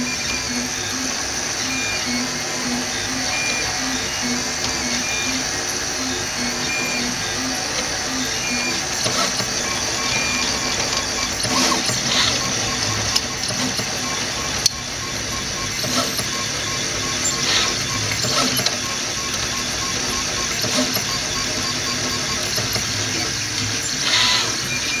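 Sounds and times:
cooling fan hum: 0.0s - 25.0s
stepper motors whirring: 0.0s - 25.0s.

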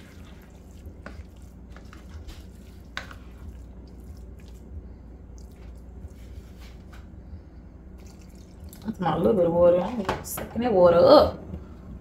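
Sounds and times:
spoon scraping rice in pot: 0.0s - 3.6s
low hum: 0.0s - 12.0s.

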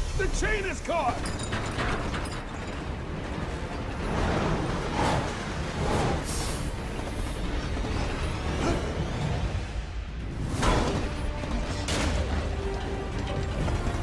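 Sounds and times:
train rumbling on tracks: 0.0s - 14.0s.

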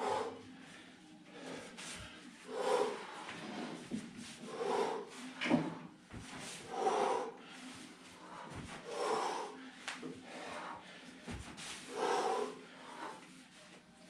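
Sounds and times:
person breathing hard: 0.0s - 13.6s
bare feet thudding on floor: 11.2s - 11.7s.

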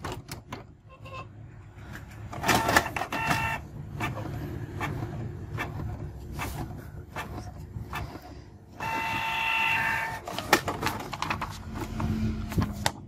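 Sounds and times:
printer motor whine: 2.4s - 4.2s, 8.8s - 10.6s.

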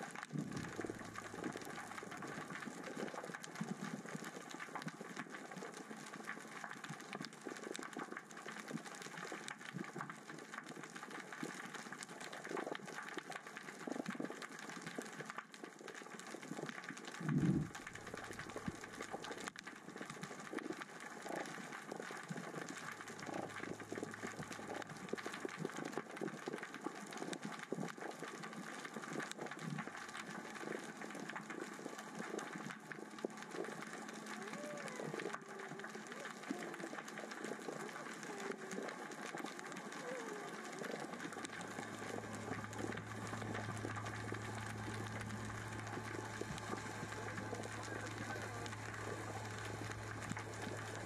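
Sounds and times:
rocks clicking underwater: 0.0s - 51.0s.

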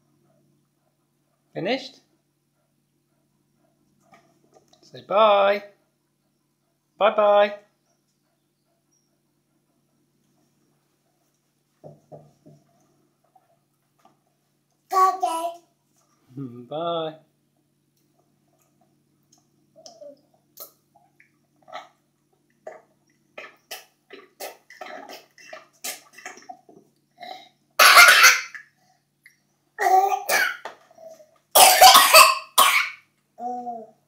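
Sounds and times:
toddler coughing: 27.2s - 28.6s, 29.8s - 30.7s, 31.6s - 33.0s.

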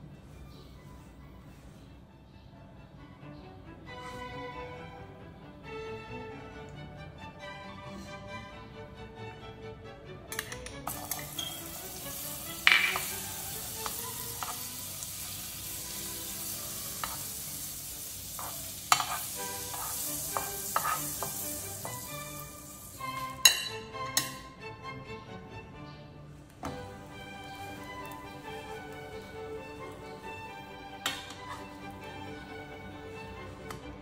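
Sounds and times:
metal spoon clinking: 10.4s - 11.8s, 18.3s - 22.0s, 23.3s - 24.4s
butter sizzling in frying pan: 10.9s - 23.7s, 26.8s - 32.4s.

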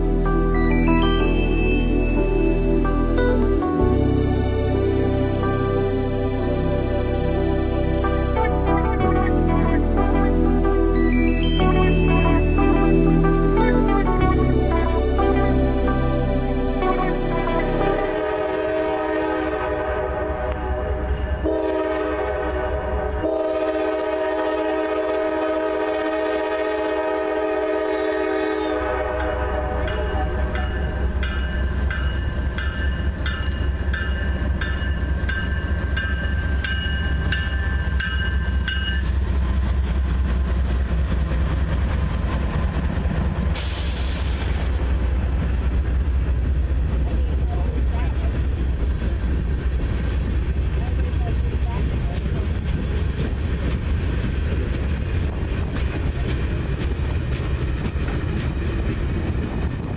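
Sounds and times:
deep rumble of passing train: 0.0s - 59.9s
bell ringing: 0.5s - 3.4s, 10.9s - 13.6s, 29.2s - 39.1s
locomotive air horn chord: 11.6s - 30.7s
air hiss: 43.6s - 44.8s.

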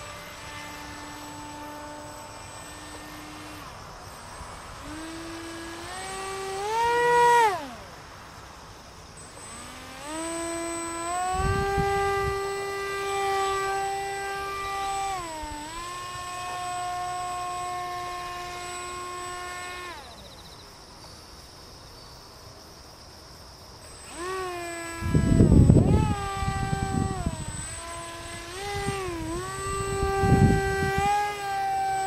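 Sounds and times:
model plane motor whining: 0.0s - 20.8s, 23.8s - 32.0s
wind rumble on microphone: 11.2s - 13.9s, 24.7s - 32.0s.

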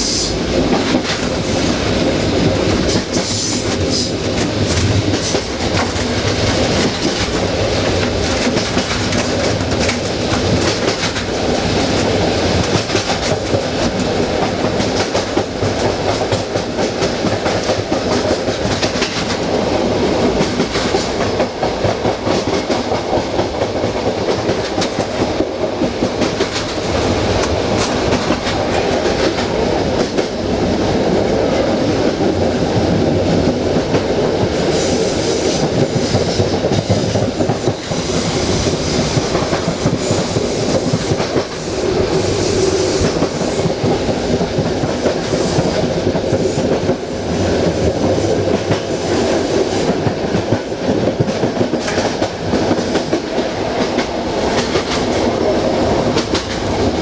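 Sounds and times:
clickety-clack of rail joints: 0.0s - 57.0s
train wheels rumbling on rail: 0.0s - 57.0s.

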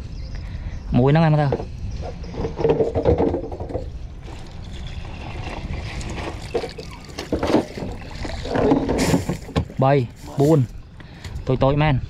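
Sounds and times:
water trickling and dripping off net: 4.2s - 10.7s.

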